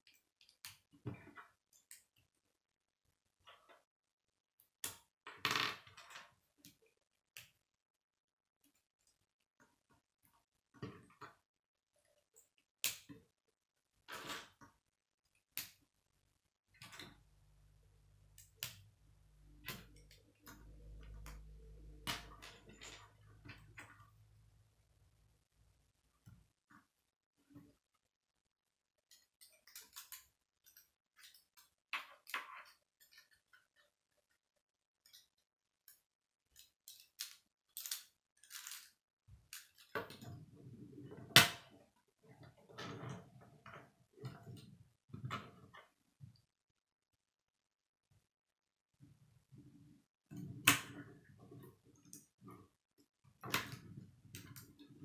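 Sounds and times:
plastic pieces clicking together: 36.5s - 40.0s.

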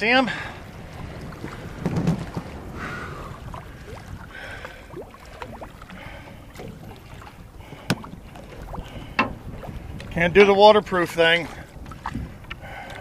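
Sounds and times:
water sloshing against boat: 0.0s - 13.0s
wind rumbling on microphone: 0.0s - 13.0s
small splashes and drips: 3.3s - 10.2s, 11.5s - 13.0s.

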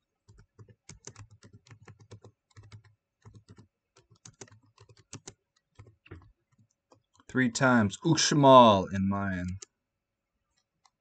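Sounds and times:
keyboard typing clicks: 0.3s - 7.3s.

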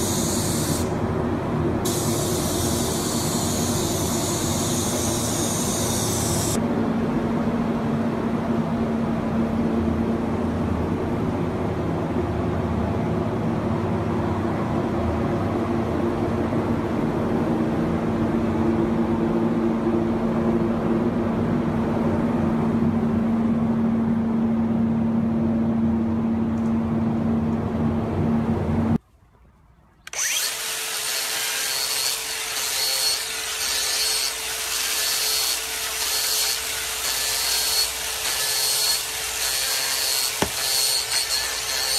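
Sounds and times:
steady mechanical hum: 0.0s - 41.9s
sanding disc on wood: 30.4s - 41.9s.

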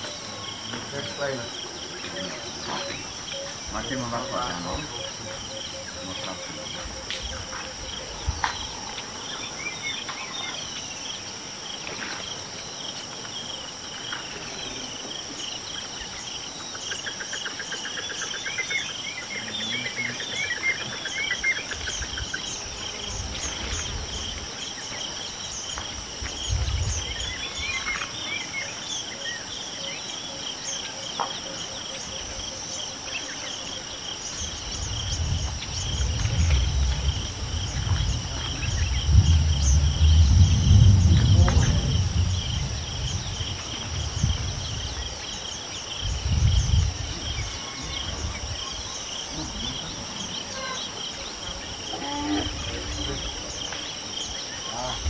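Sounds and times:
birds chirping: 0.0s - 55.0s
insect chorus: 0.0s - 55.0s
low rumble: 34.9s - 45.0s.

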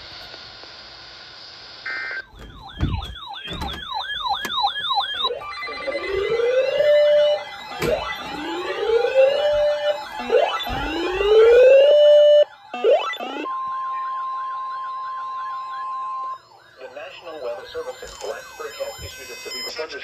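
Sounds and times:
rising whoop siren sweeps: 2.5s - 19.8s
two-tone data burst: 17.3s - 20.0s.

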